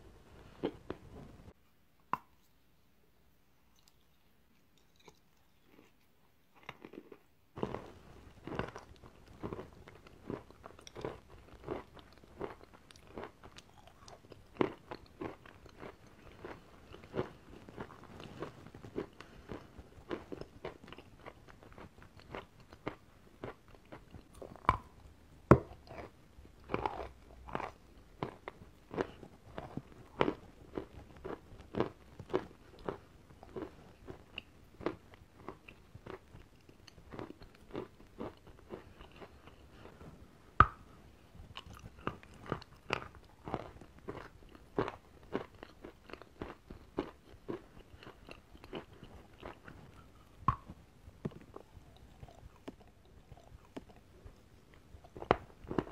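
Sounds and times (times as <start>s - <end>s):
chalk crunching while chewing: 4.6s - 25.0s, 41.5s - 55.9s.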